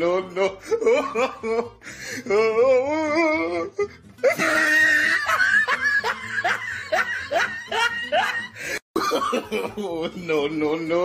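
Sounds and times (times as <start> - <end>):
person giggling: 0.6 - 2.4, 4.2 - 10.3.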